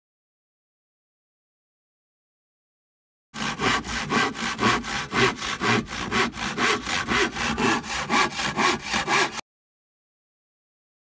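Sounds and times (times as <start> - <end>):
hand saw cutting wood: 3.4 - 9.4.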